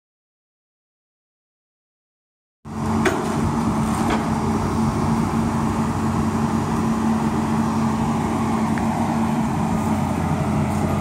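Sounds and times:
excavator diesel engine humming: 2.7 - 11.0.

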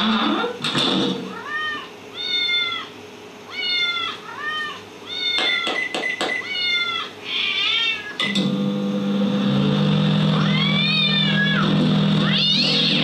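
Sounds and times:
microwave oven humming: 0.0 - 13.0
cat meowing: 1.3 - 2.9, 3.5 - 5.8, 6.4 - 8.2, 10.4 - 13.0.

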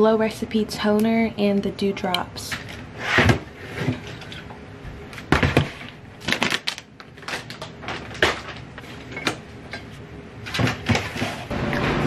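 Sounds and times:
plastic basket knocking and rattling: 5.3 - 6.4.

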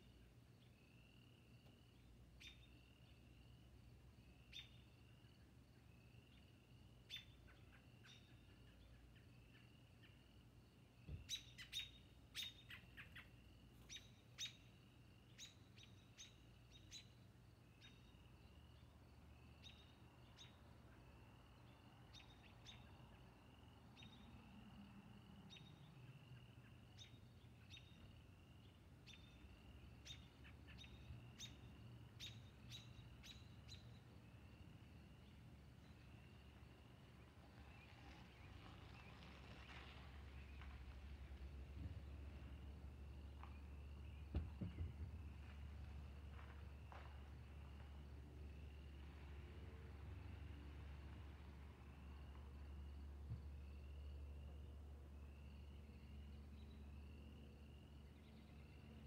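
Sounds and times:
bird chirps: 2.4 - 3.2, 4.4 - 5.0, 7.1 - 10.3, 11.1 - 18.2, 25.5 - 34.2.

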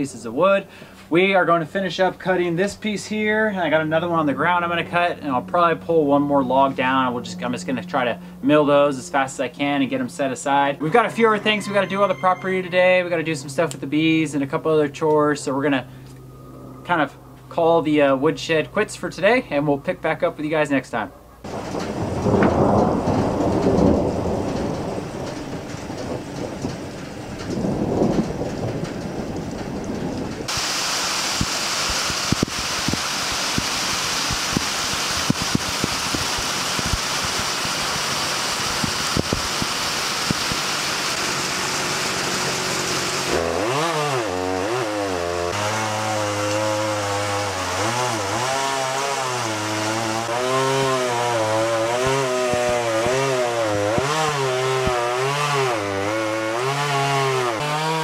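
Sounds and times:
thunder rumbling: 21.5 - 30.5
heavy rain: 21.5 - 43.1
chainsaw engine revving: 30.5 - 58.0.

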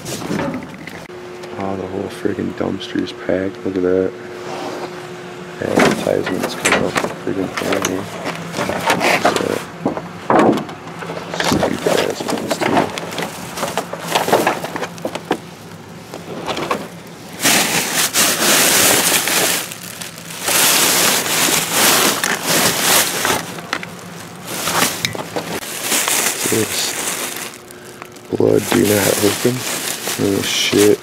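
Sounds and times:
plastic bags crinkling: 11.0 - 31.0.

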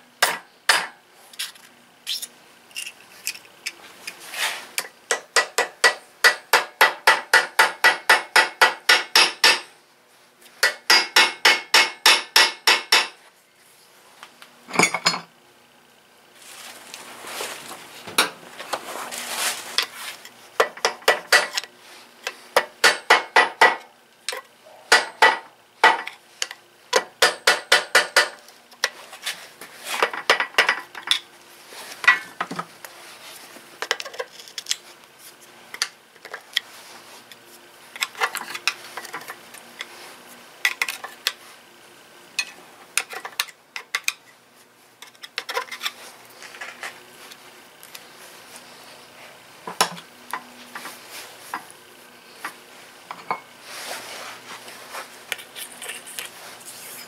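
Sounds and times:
metal tools clinking: 14.7 - 15.3.

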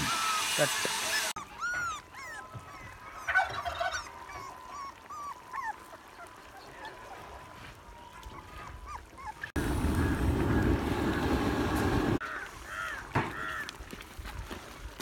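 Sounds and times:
birds chirping: 0.0 - 13.7.

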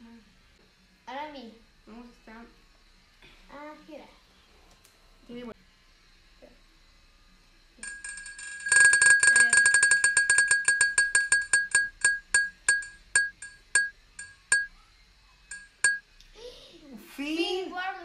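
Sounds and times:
bell-like wheel ticks: 7.8 - 14.7, 15.5 - 16.0.

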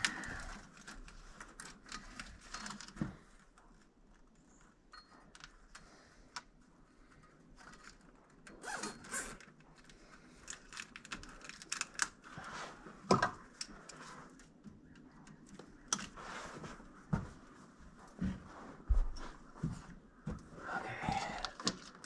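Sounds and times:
small clicks and rattles: 0.0 - 12.4, 21.5 - 22.0.

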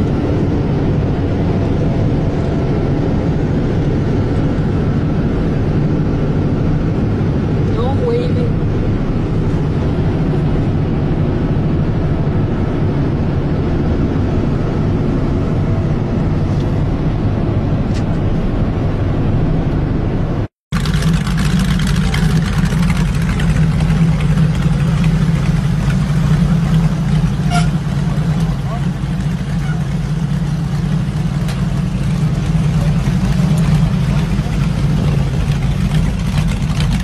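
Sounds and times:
motorcycle engine riding: 0.0 - 37.0
wind noise: 0.0 - 37.0
motorcycle engine idling: 20.8 - 37.0.

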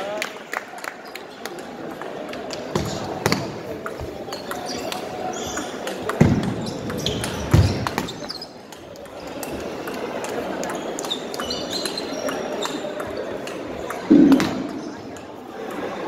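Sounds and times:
heavy thumps: 14.1 - 15.0.

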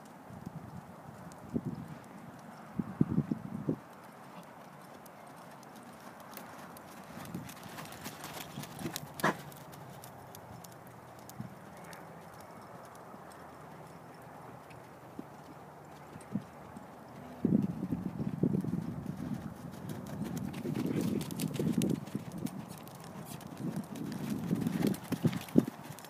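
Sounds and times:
horse hoofbeats on sand: 5.4 - 26.0.

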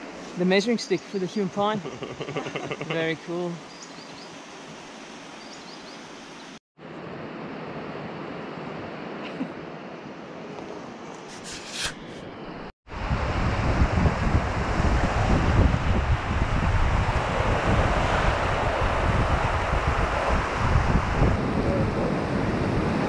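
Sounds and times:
soft outdoor hiss: 0.0 - 6.6
wind rumbling on microphone: 10.1 - 23.0.

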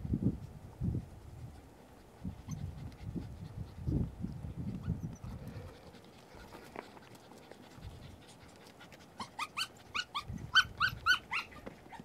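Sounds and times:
dog whining: 9.2 - 12.0.

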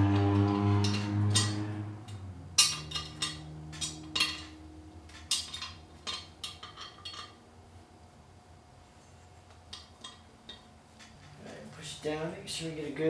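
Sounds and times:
metallic clinks and knocks: 0.0 - 7.4
low hum: 0.0 - 12.8.

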